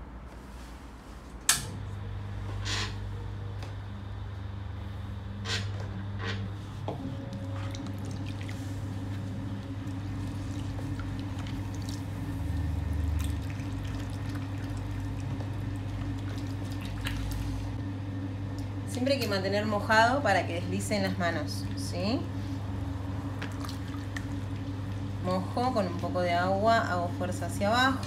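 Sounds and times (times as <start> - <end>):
pottery wheel motor humming: 1.5 - 28.0
dripping and squelching clay: 7.4 - 17.8
water splashing: 9.7 - 17.8.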